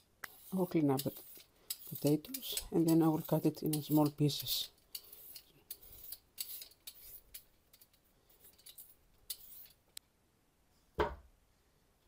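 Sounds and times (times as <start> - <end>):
peeler scraping potato skin: 0.0 - 9.8.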